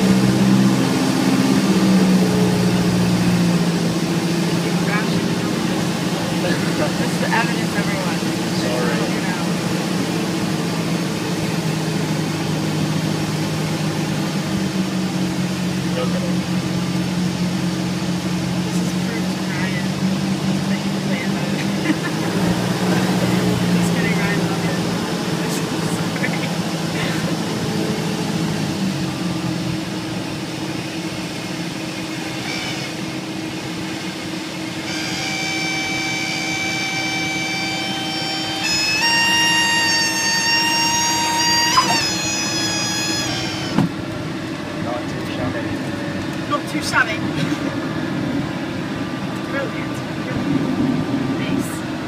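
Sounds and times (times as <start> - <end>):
propeller plane engine droning: 0.0 - 52.0
stall warning horn wailing: 18.5 - 30.2, 32.1 - 46.0.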